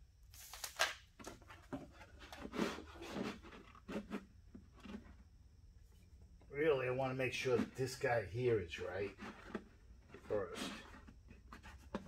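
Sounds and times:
plastic panel scraping and knocking: 1.4 - 5.2.

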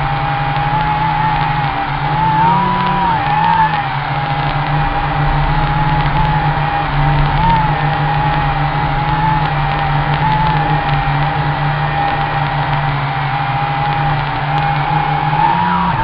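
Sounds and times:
drone propellers whining: 0.0 - 16.0.

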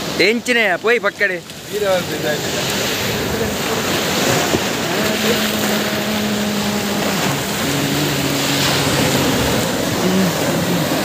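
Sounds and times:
surf washing onto beach: 0.0 - 11.0
wind on microphone: 1.8 - 11.0
steady humming tone: 4.7 - 11.0.

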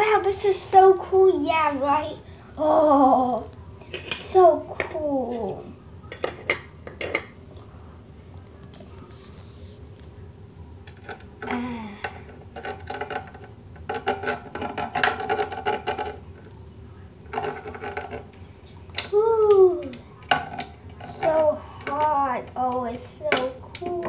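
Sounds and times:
plastic dolls clattering in dish: 10.9 - 16.2, 17.3 - 18.3, 20.2 - 24.0
child wordless vocal sound: 11.5 - 12.2, 21.0 - 24.0.

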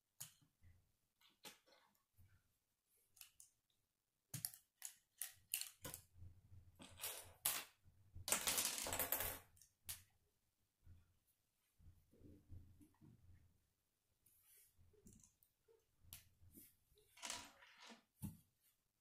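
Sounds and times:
plastic pieces clicking: 4.3 - 6.0.

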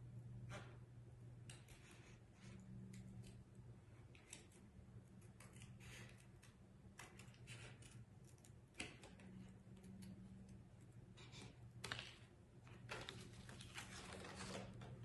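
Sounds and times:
scissors cutting cardboard: 4.1 - 9.5.

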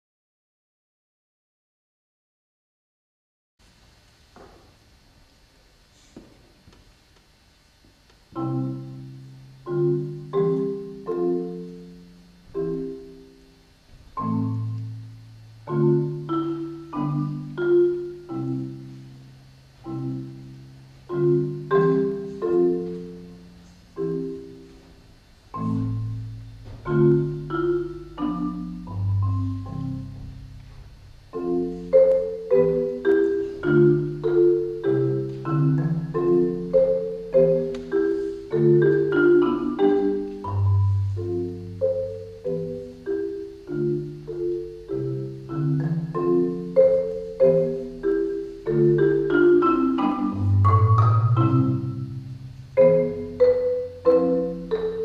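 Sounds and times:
marimba chords: 8.2 - 55.0.

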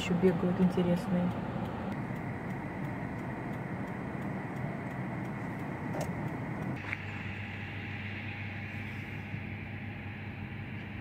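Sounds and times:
car engine rumbling: 0.0 - 11.0.

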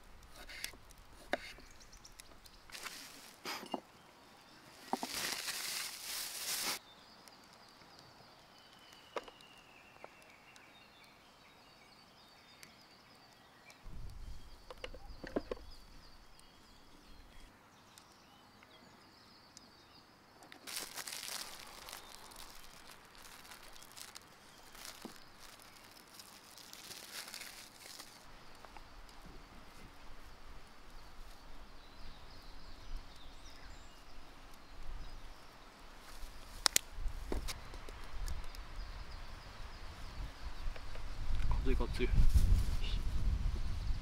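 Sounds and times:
plastic bag crinkling: 2.7 - 3.5, 4.8 - 6.8, 20.6 - 28.3.

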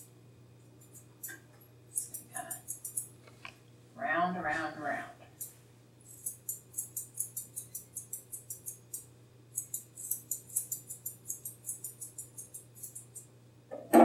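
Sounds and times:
scissors snipping hair: 0.8 - 3.1, 5.4 - 13.3.

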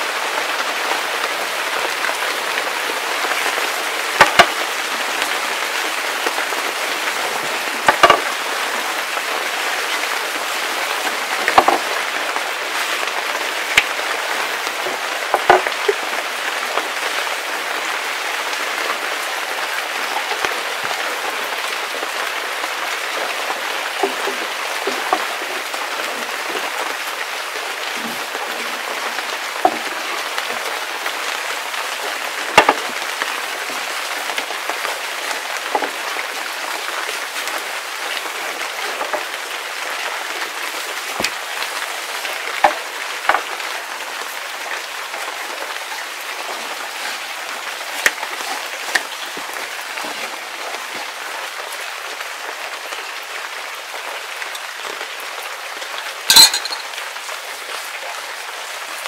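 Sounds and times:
rolling pin knocking on wooden board: 4.2 - 4.5, 7.9 - 8.3, 11.5 - 11.8.

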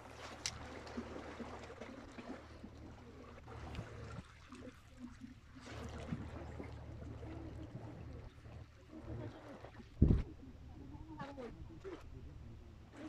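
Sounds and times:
water lapping and splashing: 0.0 - 13.0
wind rumbling on microphone: 9.0 - 12.9.

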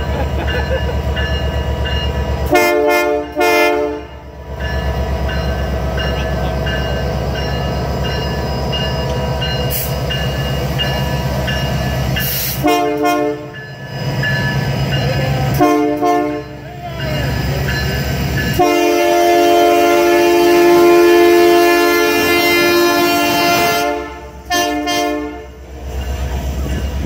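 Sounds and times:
diesel engine rumble: 0.0 - 2.5
locomotive horn blasts: 2.5 - 4.2, 12.5 - 13.6, 15.5 - 16.6, 18.5 - 25.6.

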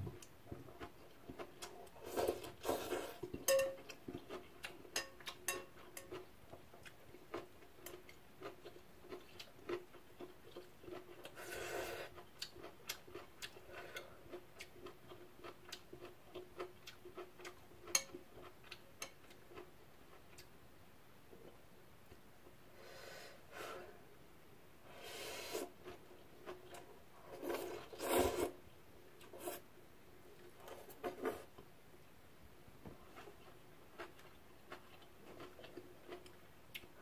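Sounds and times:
chewing: 0.2 - 20.5, 33.1 - 37.0
person slurping noodles: 24.9 - 25.7, 27.4 - 28.6.

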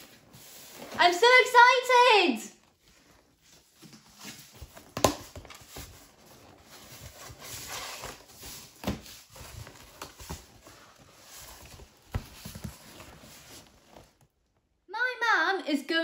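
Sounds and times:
cardboard flaps scraping and rustling: 0.0 - 1.1, 2.7 - 14.4.

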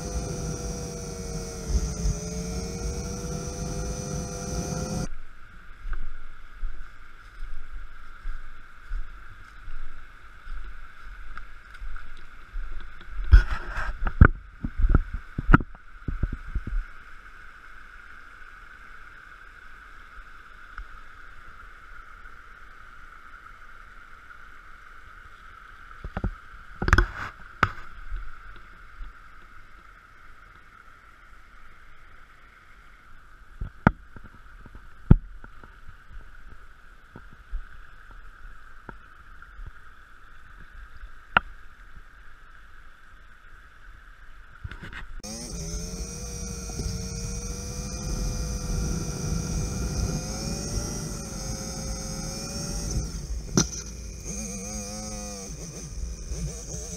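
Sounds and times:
low rumbles: 0.0 - 6.1, 45.2 - 56.9.

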